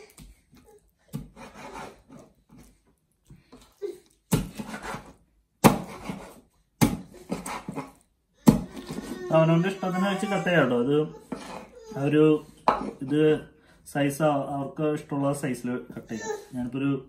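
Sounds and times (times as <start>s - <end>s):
knife chopping on wooden board: 4.3s - 9.2s.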